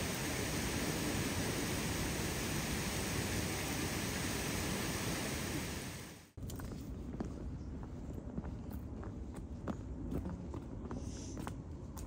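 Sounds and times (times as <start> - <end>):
loud rushing noise: 0.0 - 6.3.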